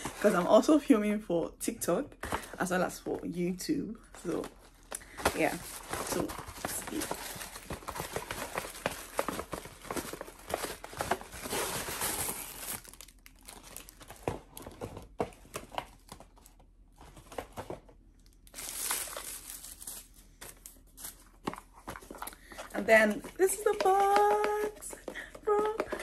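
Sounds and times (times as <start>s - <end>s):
paper crinkling and rustling: 4.1s - 17.8s.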